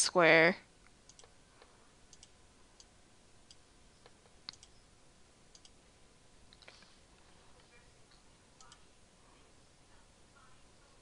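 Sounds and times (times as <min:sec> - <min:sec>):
faint computer mouse clicks: 0:01.1 - 0:02.9, 0:03.5 - 0:04.8, 0:05.5 - 0:05.8.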